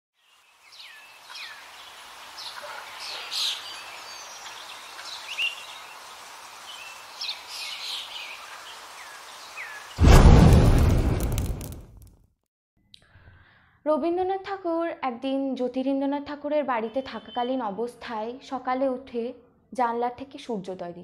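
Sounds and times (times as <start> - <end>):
faint steady hiss: 0.2 - 10.0
loud rushing burst of noise: 10.0 - 12.0.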